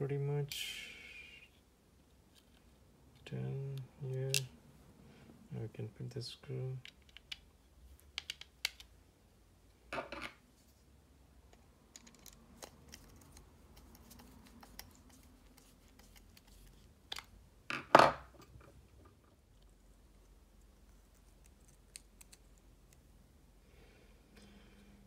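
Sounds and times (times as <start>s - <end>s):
metal parts clicking and tapping: 11.9s - 13.1s.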